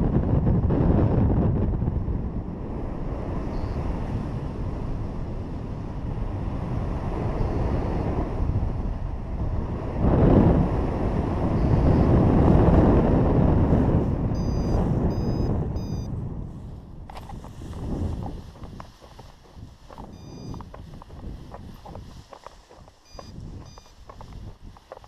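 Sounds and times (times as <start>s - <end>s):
wind rushing over microphone: 0.0s - 25.0s
short high-pitched beeps: 11.6s - 12.1s, 14.4s - 16.1s, 20.1s - 20.8s, 23.0s - 24.2s.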